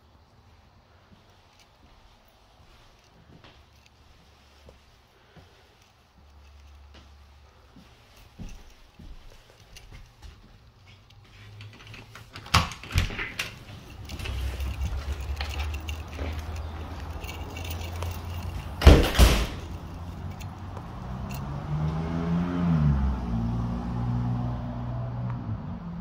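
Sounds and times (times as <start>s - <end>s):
screen door banging: 18.6s - 19.9s.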